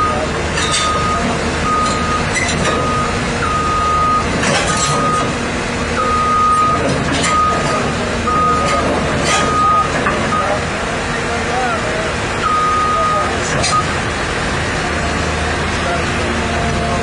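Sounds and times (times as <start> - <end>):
excavator travel alarm beeping: 0.0 - 10.7, 12.4 - 14.0
diesel engine running: 0.0 - 17.0.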